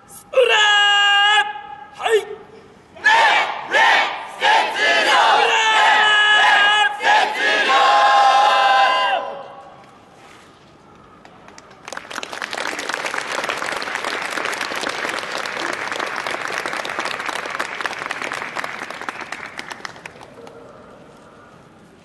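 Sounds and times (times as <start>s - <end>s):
audience applauding: 11.5s - 20.4s.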